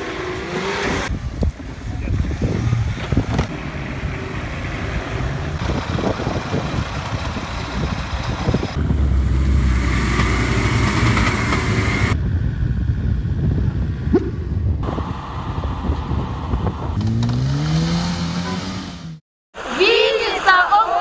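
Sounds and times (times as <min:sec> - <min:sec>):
off-road engines revving: 0:00.0 - 0:12.2, 0:14.2 - 0:21.0
heavy low engine rumble: 0:01.1 - 0:17.0.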